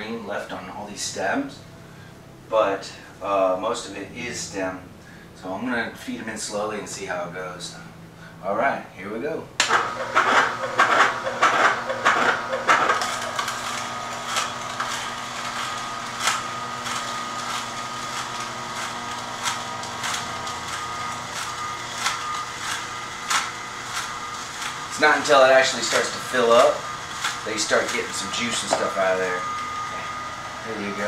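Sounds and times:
stems crackling and snapping: 0:09.6 - 0:30.1
juicer motor hum: 0:09.6 - 0:31.0.

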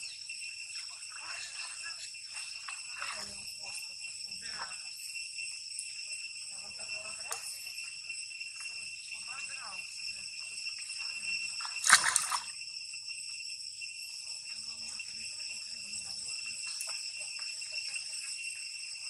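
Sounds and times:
high-pitched insect drone: 0:00.0 - 0:19.0
water splash: 0:11.6 - 0:12.5.

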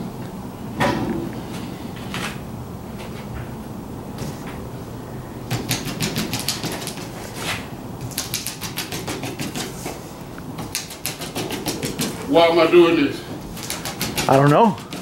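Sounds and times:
rapid sharp clicking taps: 0:05.5 - 0:07.1, 0:08.0 - 0:10.0, 0:10.6 - 0:12.2, 0:13.5 - 0:15.0.

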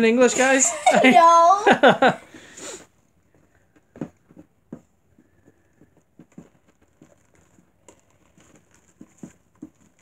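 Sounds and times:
slime squishing: 0:06.0 - 0:10.0.

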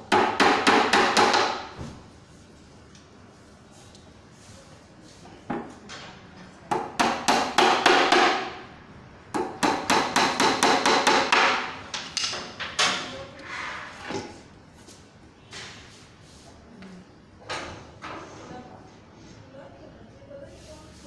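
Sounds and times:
hammer striking wood: 0:00.1 - 0:01.9, 0:06.7 - 0:08.6, 0:09.3 - 0:12.5.

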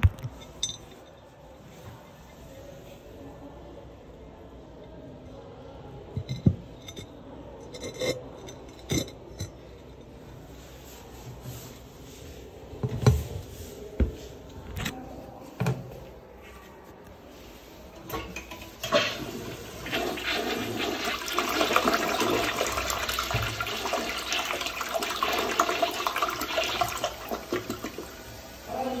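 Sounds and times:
toilet flushing: 0:17.9 - 0:29.0.

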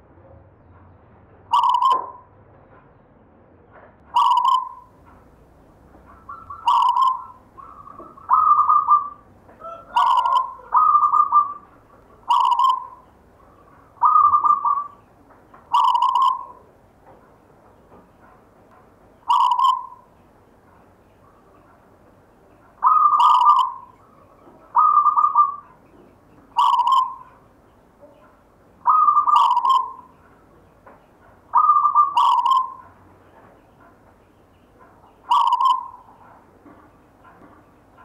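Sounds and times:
dove cooing: 0:01.5 - 0:02.2, 0:04.2 - 0:05.0, 0:05.9 - 0:16.7, 0:19.2 - 0:20.2, 0:22.7 - 0:27.4, 0:28.0 - 0:30.5, 0:31.2 - 0:33.5, 0:34.8 - 0:38.0.

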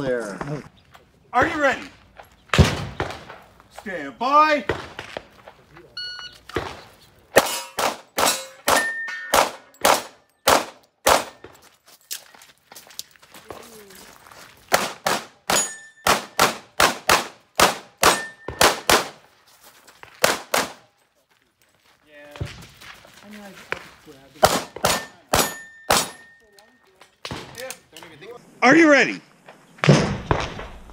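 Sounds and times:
shot timer beep: 0:06.0 - 0:06.4
pistol shots: 0:07.4 - 0:11.4, 0:14.7 - 0:19.2, 0:20.2 - 0:20.8, 0:24.4 - 0:26.3.

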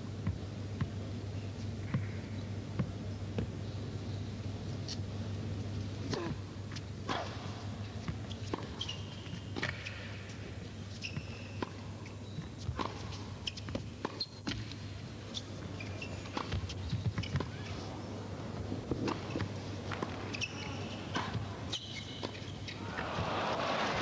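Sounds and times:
shoes squeaking on court: 0:06.1 - 0:22.8.

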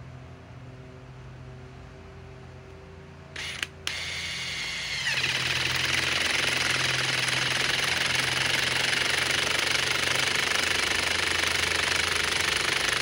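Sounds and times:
impact driver hammering: 0:03.4 - 0:13.0
impact driver whining: 0:03.4 - 0:13.0.

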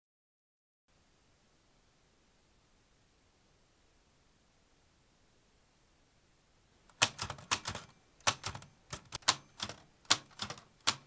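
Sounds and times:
typewriter key strikes: 0:06.9 - 0:11.0.

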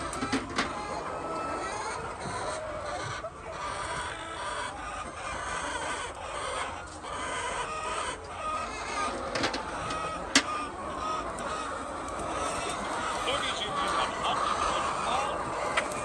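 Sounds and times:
hens clucking: 0:00.0 - 0:16.0.

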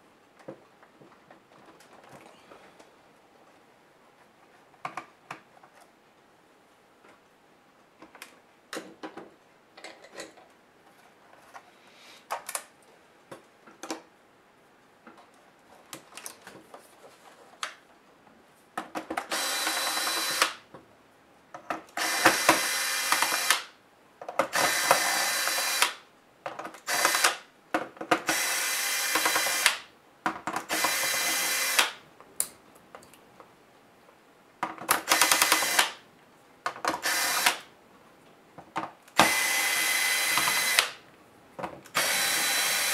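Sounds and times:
electric screwdriver whirring: 0:19.3 - 0:20.6, 0:22.0 - 0:23.7, 0:24.5 - 0:26.0, 0:26.9 - 0:27.4, 0:28.3 - 0:29.8, 0:30.7 - 0:32.0, 0:35.1 - 0:36.0, 0:37.0 - 0:37.6, 0:39.2 - 0:41.0, 0:42.0 - 0:42.9.

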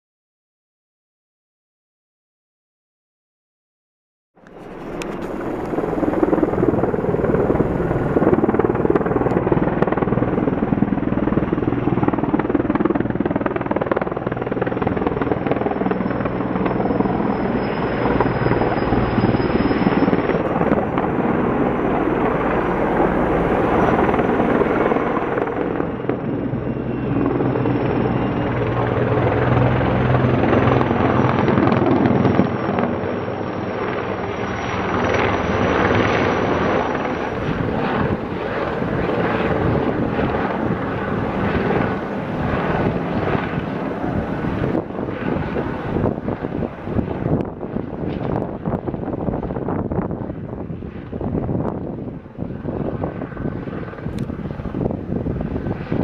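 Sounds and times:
high wavering whine: 0:04.4 - 0:09.9, 0:15.6 - 0:29.0
helicopter rotor and engine noise: 0:04.4 - 0:56.0.

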